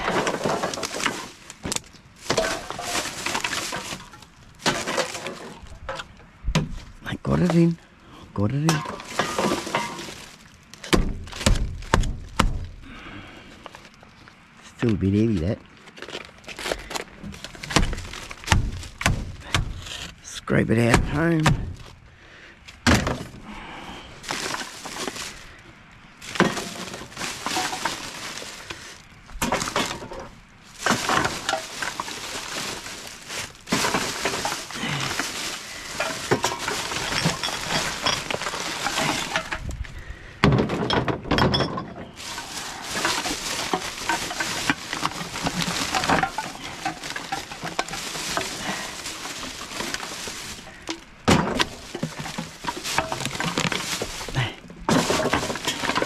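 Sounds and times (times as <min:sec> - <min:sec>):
hard items clinking and clattering: 0:00.0 - 0:06.2, 0:08.6 - 0:12.8, 0:24.2 - 0:25.5, 0:26.2 - 0:56.0
rubbish shifting and scraping: 0:00.0 - 0:56.0.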